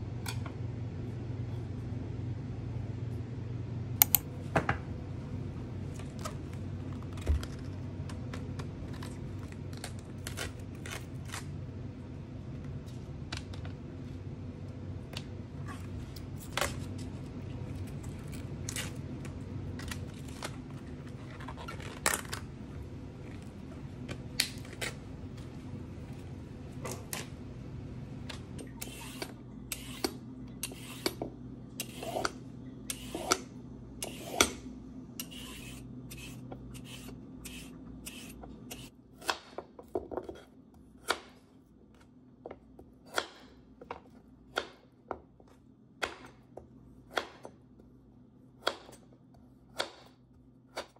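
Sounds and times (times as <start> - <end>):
low steady hum: 0.0 - 50.9
peeler scraping carrot: 28.8 - 31.2, 31.8 - 33.4, 34.0 - 34.6, 35.2 - 38.9
knife chopping on cutting board: 43.0 - 43.6.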